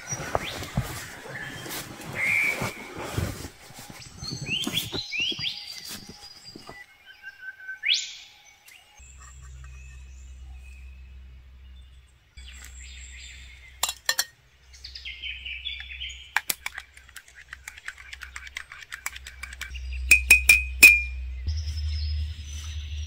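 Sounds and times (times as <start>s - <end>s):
birds chirping: 0.0s - 23.0s
spoon clinking in ceramic mug: 13.8s - 14.3s, 20.1s - 21.1s.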